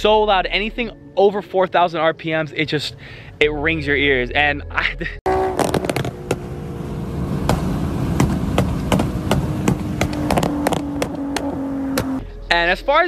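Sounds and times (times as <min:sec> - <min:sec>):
car engine accelerating hard: 0:05.3 - 0:12.2
exhaust crackles and pops: 0:05.3 - 0:12.2.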